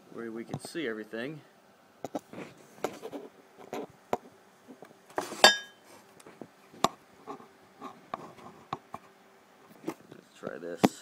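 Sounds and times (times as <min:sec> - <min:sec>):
sharp metallic clink: 0:05.4 - 0:05.8.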